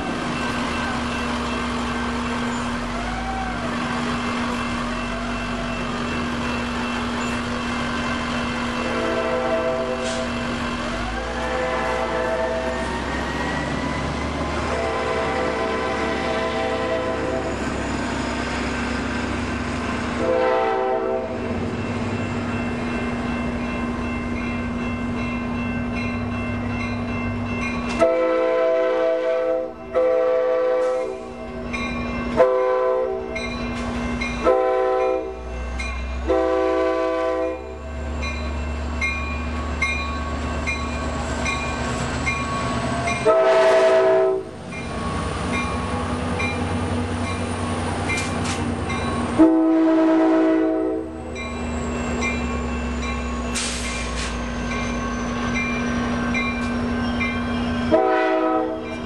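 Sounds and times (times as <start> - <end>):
train rumbling: 0.0 - 59.0
locomotive air horn blasts: 8.8 - 10.4, 11.1 - 12.9, 14.6 - 17.6, 20.2 - 21.5, 28.0 - 31.3, 32.4 - 33.3, 34.4 - 35.4, 36.2 - 37.7, 43.2 - 44.5, 49.4 - 51.2, 57.9 - 58.9.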